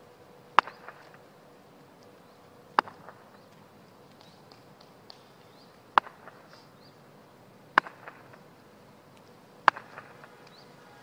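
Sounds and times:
wooden bat knocking on asphalt: 0:09.7 - 0:10.5.

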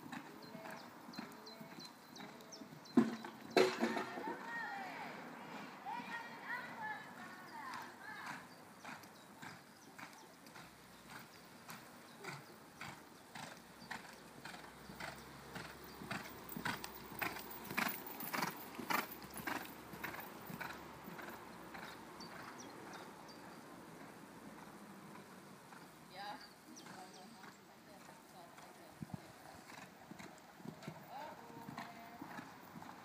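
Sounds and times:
hoofbeats on sand: 0:07.6 - 0:23.0.

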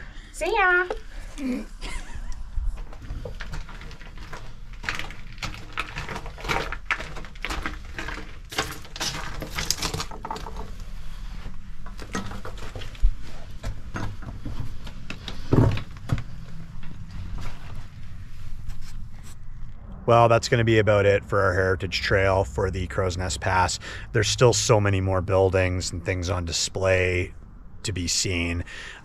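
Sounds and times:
scraping and shuffling over rubble: 0:02.7 - 0:19.6
low rumble: 0:16.4 - 0:24.3.

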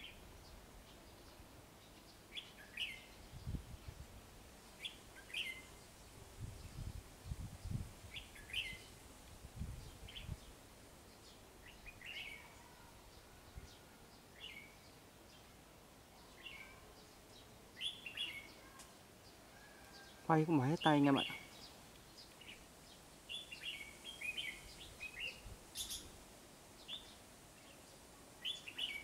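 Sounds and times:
birds chirping: 0:16.2 - 0:26.2, 0:26.8 - 0:29.0.

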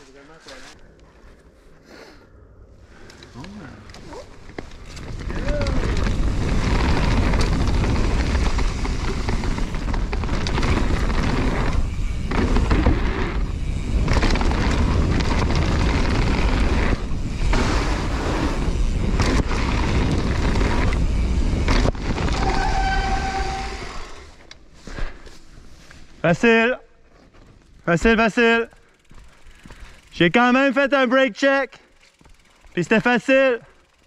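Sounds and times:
bike tyre and trail noise: 0:00.0 - 0:34.0
wind buffeting microphone: 0:04.7 - 0:22.6
high brake squeal: 0:22.4 - 0:24.2.

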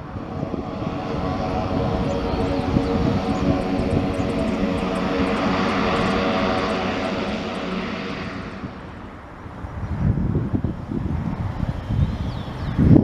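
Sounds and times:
loud propeller drone: 0:00.0 - 0:11.8
wind rumble on microphone: 0:00.0 - 0:13.0.

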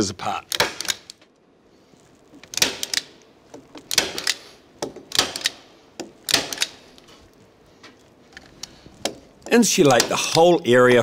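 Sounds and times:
staple gun firing: 0:00.5 - 0:01.2, 0:02.5 - 0:03.1, 0:03.9 - 0:04.4, 0:05.1 - 0:05.6, 0:06.3 - 0:06.8.

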